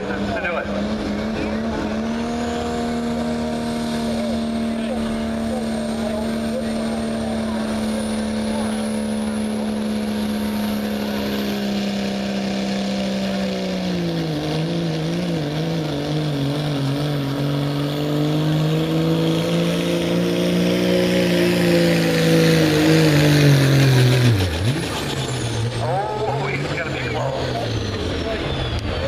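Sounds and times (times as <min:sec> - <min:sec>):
diesel truck engine at high revs: 0:00.0 - 0:29.0.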